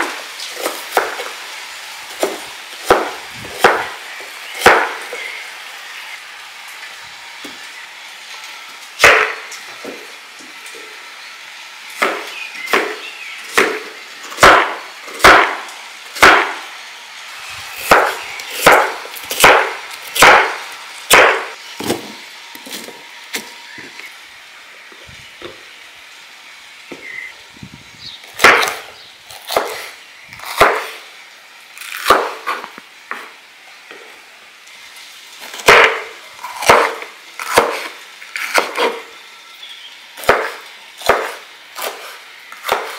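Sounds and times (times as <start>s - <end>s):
knife chopping on wooden board: 0.6s - 1.3s, 2.2s - 3.9s, 4.6s - 5.1s, 9.0s - 10.0s, 12.0s - 15.6s, 16.2s - 16.6s, 17.8s - 22.1s, 28.4s - 28.8s, 29.4s - 31.0s, 32.0s - 33.3s, 35.6s - 39.0s, 40.2s - 42.9s.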